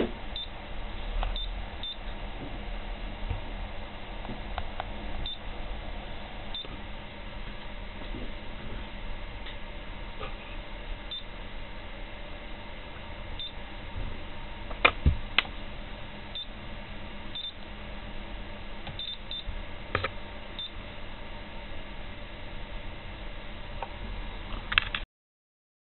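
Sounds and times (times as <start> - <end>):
high beeps from touchscreen: 19.0 - 19.4.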